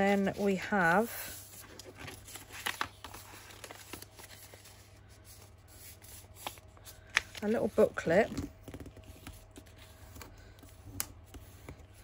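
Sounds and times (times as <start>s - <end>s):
paper rustling and crinkling: 0.0s - 12.0s.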